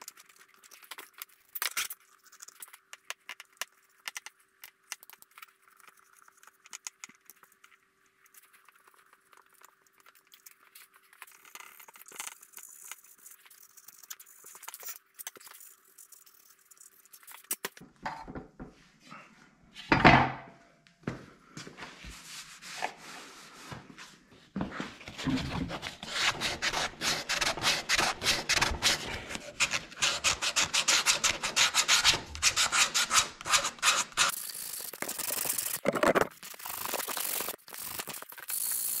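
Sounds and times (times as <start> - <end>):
sandpaper rubbing on wood: 25.8 - 34.4.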